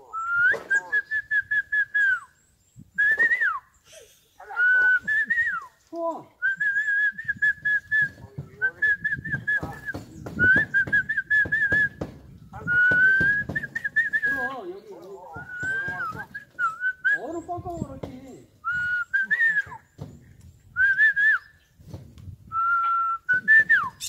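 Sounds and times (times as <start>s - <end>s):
man whistling bird call: 0.0s - 4.0s, 4.6s - 5.8s, 6.4s - 14.5s, 15.4s - 17.5s, 18.6s - 19.9s, 20.8s - 21.6s, 22.5s - 24.0s.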